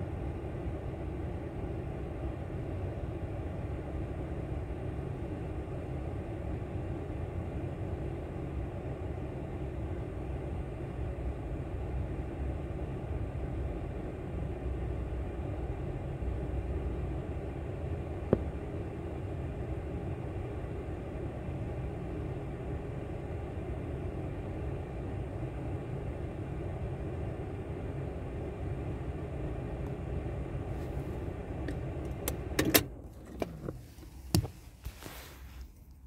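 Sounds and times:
car engine idling: 15.5s - 36.0s.

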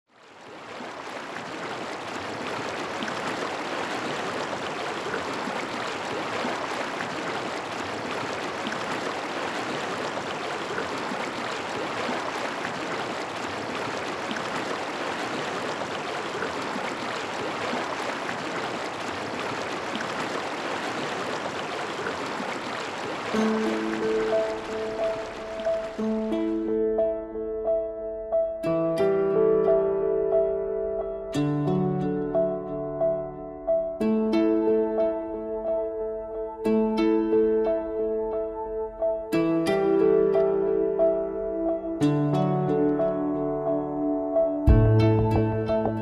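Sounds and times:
mountain stream rushing: 0.1s - 26.6s.

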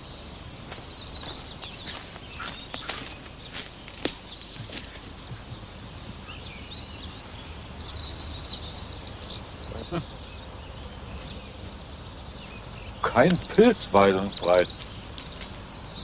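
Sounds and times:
songbirds chirping: 0.0s - 16.0s
bird trill: 4.3s - 16.0s.

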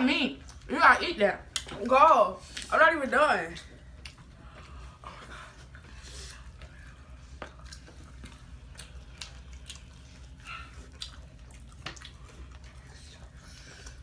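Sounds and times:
steady low hum: 0.0s - 14.0s
chewing and mouth noises: 3.6s - 14.0s.

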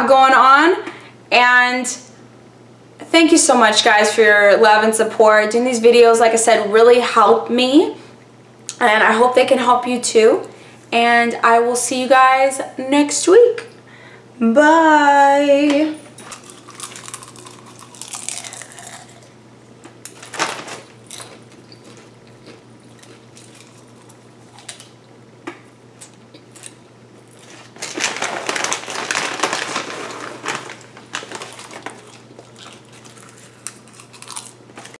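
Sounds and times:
steady low hum: 0.0s - 35.0s
foil snack bag rustling: 16.2s - 19.2s, 20.1s - 22.1s, 26.5s - 35.0s.

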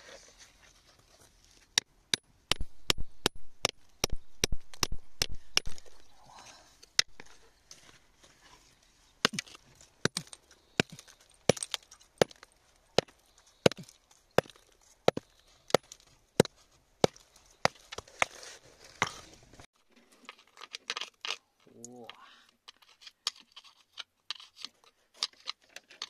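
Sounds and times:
hand tool striking rock: 1.8s - 6.1s, 9.2s - 18.4s
loose stone and grit falling: 9.2s - 21.4s.

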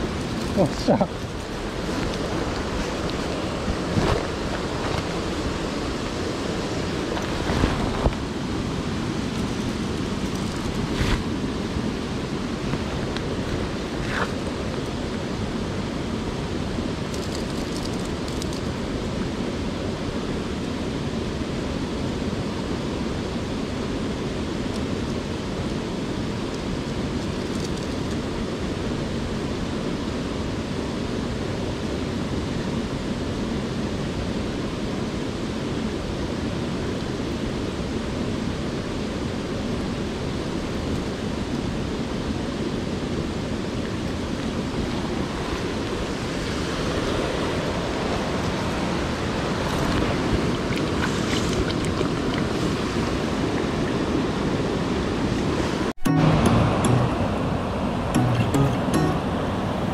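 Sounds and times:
stream water rushing over rocks: 0.0s - 27.2s, 35.8s - 59.9s.

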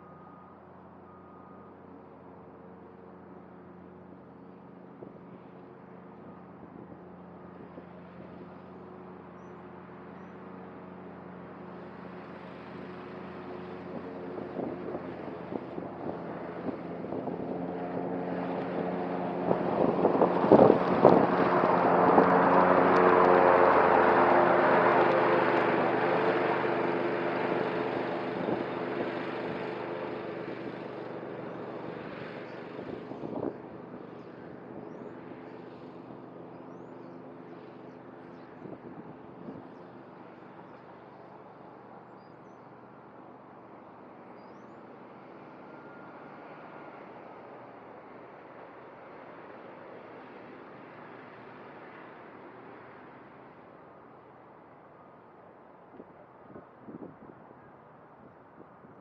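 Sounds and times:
mower cutting grass: 9.8s - 41.1s.

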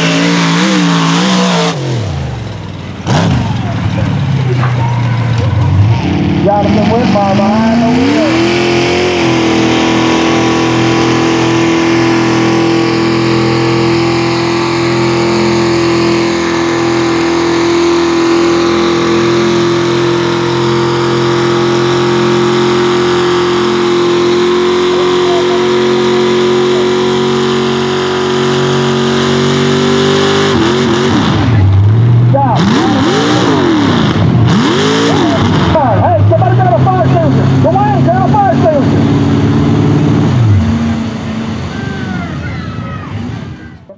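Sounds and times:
tires churning through mud: 0.0s - 43.9s
truck engine revving high: 0.0s - 43.9s.

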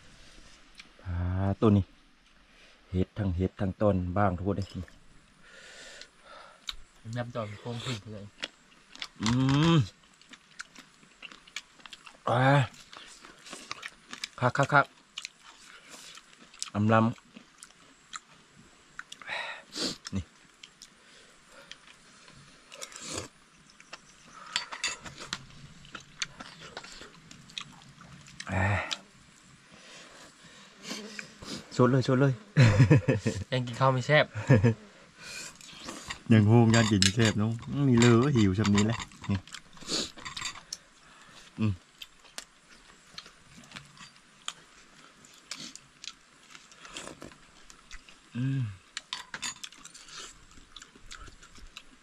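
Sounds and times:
chewing: 7.7s - 29.1s, 35.3s - 52.0s
brief vocal sounds: 48.4s - 48.8s.

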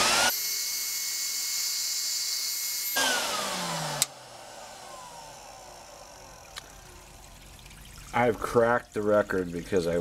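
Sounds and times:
motor winding down whine: 0.0s - 7.4s.

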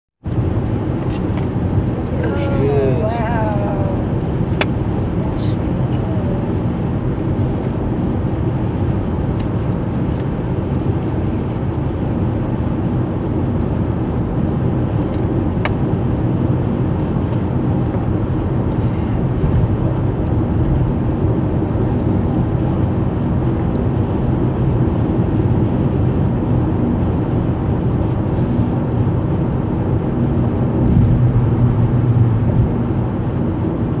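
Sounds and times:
car road and engine noise: 0.2s - 34.0s.

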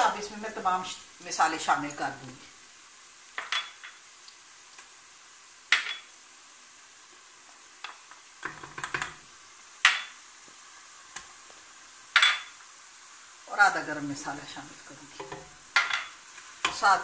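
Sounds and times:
faint sizzle: 0.0s - 17.0s
spoon stirring frying onions: 0.0s - 17.0s
spoon knocking against pot: 8.4s - 9.2s.

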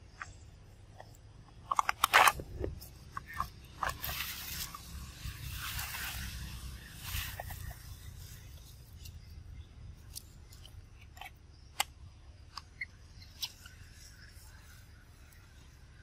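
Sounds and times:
clicks and crackles on dry leaves: 1.0s - 11.9s.

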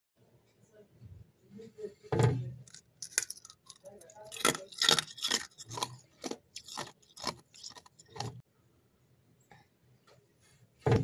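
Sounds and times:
frost crunching: 2.6s - 8.4s.

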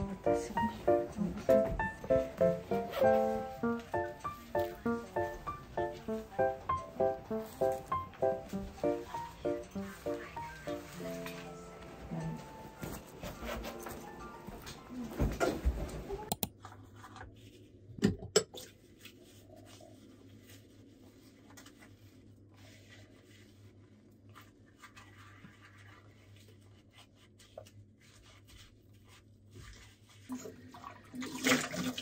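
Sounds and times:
tap running water: 30.3s - 32.0s.

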